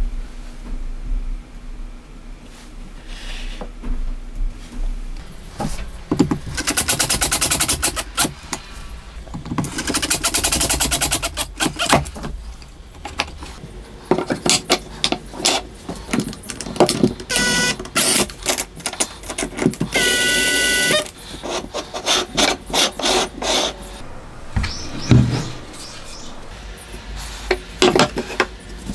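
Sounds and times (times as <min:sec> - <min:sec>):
impact driver hammering screws: 0:06.2 - 0:08.3.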